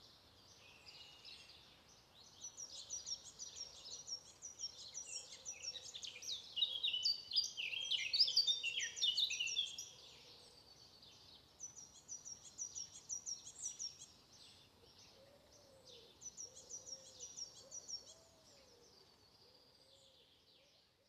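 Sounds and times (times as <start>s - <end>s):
high chirping birdsong: 0.0s - 10.0s, 10.6s - 20.7s.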